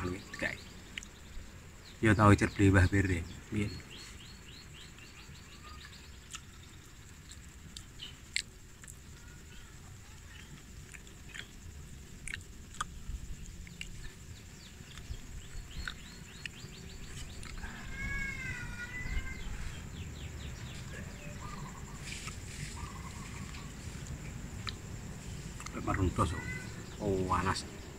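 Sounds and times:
low wind rumble: 0:10.8 - 0:27.9
wavering animal call: 0:17.2 - 0:24.0, 0:25.8 - 0:27.6.

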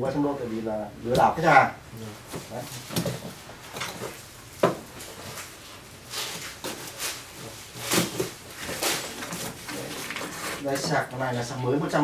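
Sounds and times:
tape and cardboard rasping: 0:02.3 - 0:11.0.

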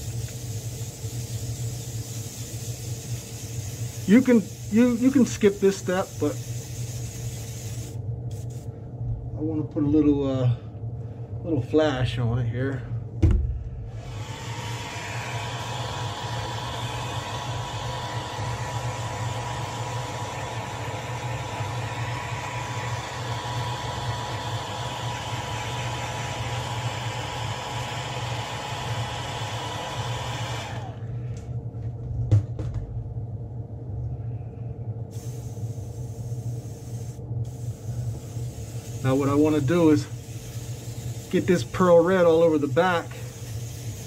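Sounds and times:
hot-air dryer rushing: 0:00.0 - 0:08.0, 0:13.8 - 0:31.2, 0:37.5 - 0:44.0
compressor humming: 0:00.0 - 0:44.0.

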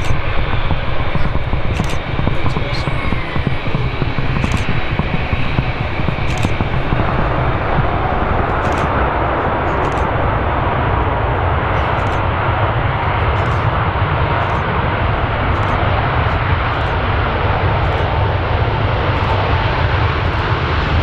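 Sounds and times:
jet engines roaring: 0:00.0 - 0:21.0
wind buffeting microphone: 0:00.0 - 0:21.0.

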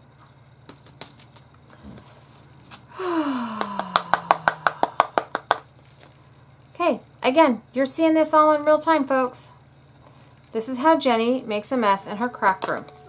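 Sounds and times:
woman groaning: 0:02.9 - 0:05.0.

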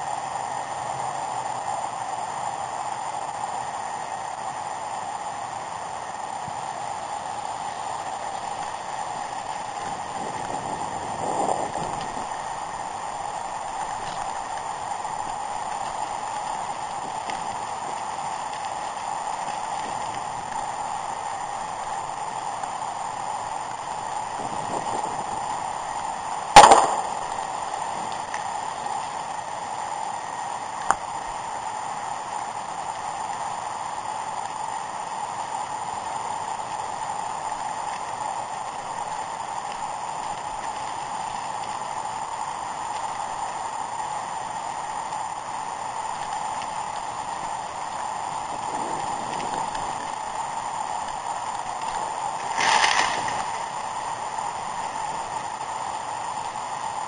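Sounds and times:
bike riding over rocky trail: 0:26.5 - 0:28.3, 0:51.2 - 0:54.0.

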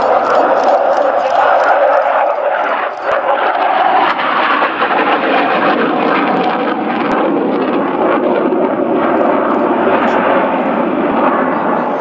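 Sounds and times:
sharp click: 0:00.0 - 0:03.1
fighter jet roaring overhead: 0:00.0 - 0:12.0.

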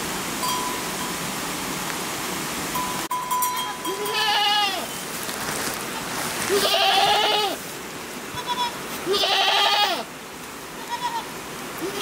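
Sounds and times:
steady rushing hiss: 0:00.0 - 0:12.0
goats bleating: 0:03.8 - 0:04.9, 0:06.5 - 0:07.6, 0:08.3 - 0:10.1, 0:10.8 - 0:12.0.

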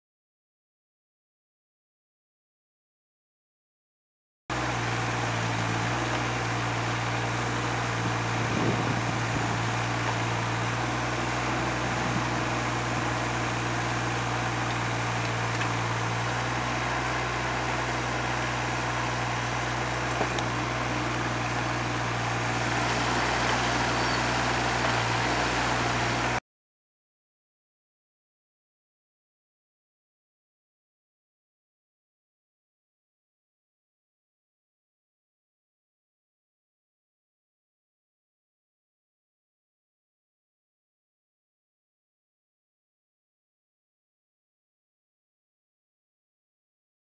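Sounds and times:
excavator diesel engine running: 0:04.5 - 0:26.4.

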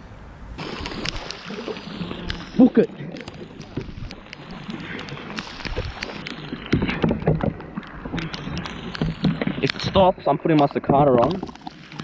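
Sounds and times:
paddle splashing in water: 0:00.6 - 0:12.0
paddle knocking on hull: 0:06.7 - 0:07.8.

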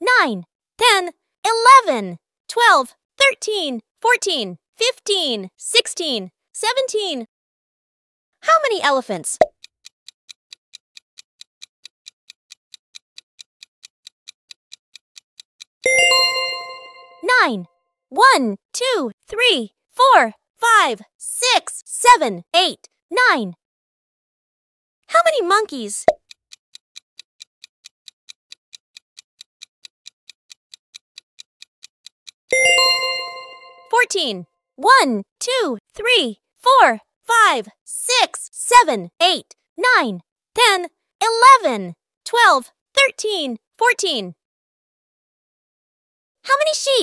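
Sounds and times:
clock ticking: 0:08.7 - 0:17.6, 0:25.3 - 0:44.2
bell ding: 0:15.9 - 0:17.2, 0:32.6 - 0:33.9
loud ringing chime: 0:15.9 - 0:17.2, 0:32.6 - 0:33.9.

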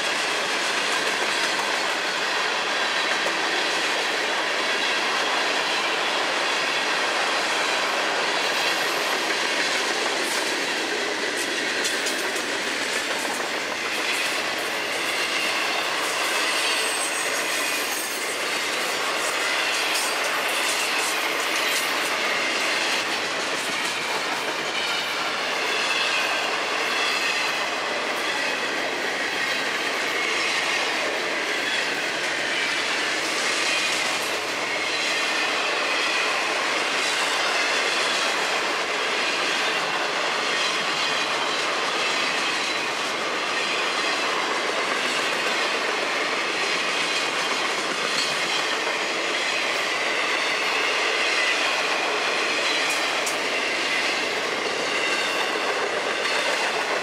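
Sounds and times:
train wheels rumbling on rails: 0:00.0 - 0:57.0
high squeal of wheels on rail: 0:10.3 - 0:57.0.

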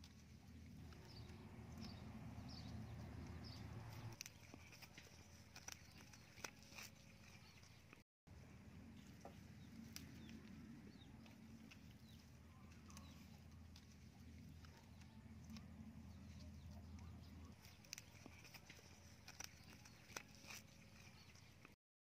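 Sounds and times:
faint low hum: 0:07.2 - 0:21.8.

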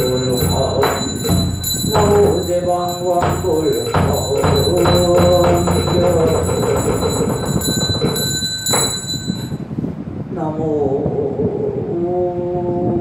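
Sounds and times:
monk and congregation chanting: 0:00.0 - 0:07.4
percussion strikes: 0:00.0 - 0:09.7.

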